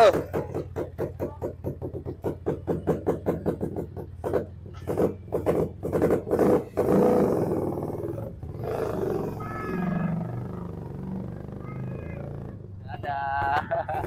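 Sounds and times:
scooter engine popping idle: 0.0s - 6.9s.

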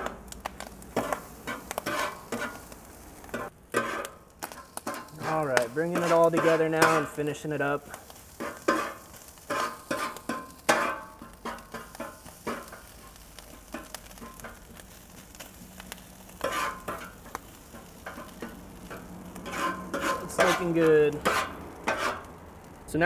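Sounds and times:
spatula scraping griddle: 0.0s - 22.4s
rice sizzling: 0.0s - 23.0s.

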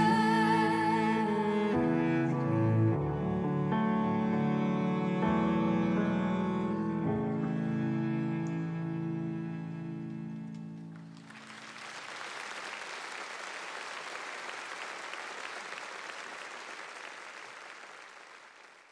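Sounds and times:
piano and cello chord: 0.0s - 11.2s
audience applause: 11.0s - 18.9s.

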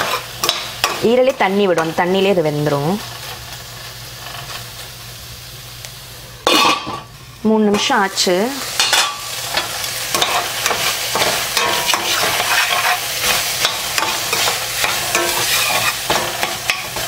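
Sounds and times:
masala sizzling: 0.0s - 17.0s
spoon scraping metal pan: 8.8s - 17.0s.

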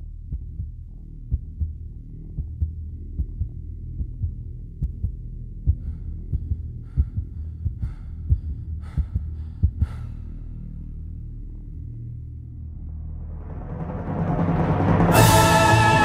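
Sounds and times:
heartbeat-like thumps: 0.1s - 10.2s
low drone: 5.5s - 16.0s.

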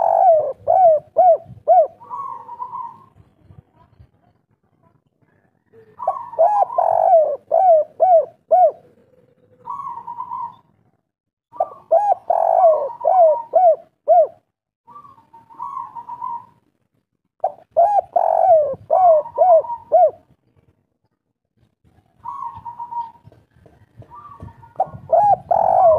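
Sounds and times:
dove cooing: 0.0s - 3.2s, 5.7s - 10.8s, 11.5s - 16.6s, 17.4s - 20.4s, 22.2s - 25.9s.

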